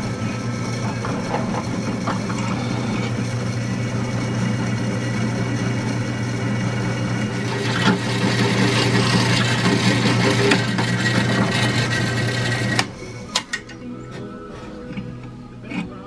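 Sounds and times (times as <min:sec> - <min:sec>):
drill press motor hum: 0:00.0 - 0:15.9
drill bit cutting steel: 0:01.8 - 0:12.9.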